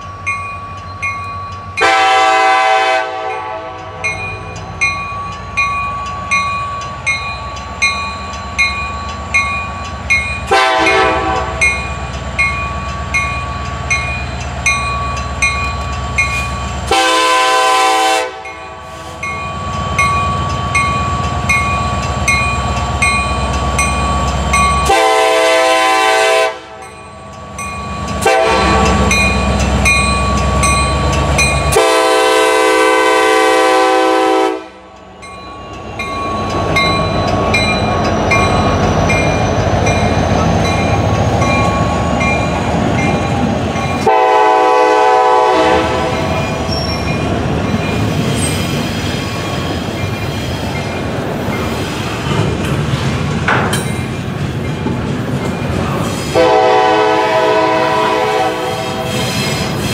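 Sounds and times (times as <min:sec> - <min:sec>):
wheels rumbling on rails: 0:00.0 - 0:59.9
locomotive air horn blasts: 0:01.8 - 0:04.0, 0:10.5 - 0:11.7, 0:16.9 - 0:19.1, 0:24.8 - 0:26.8, 0:28.2 - 0:29.2, 0:31.7 - 0:34.9, 0:44.0 - 0:46.4, 0:56.3 - 0:59.3
regular ticking: 0:11.6 - 0:16.9, 0:19.2 - 0:24.9, 0:26.8 - 0:31.8.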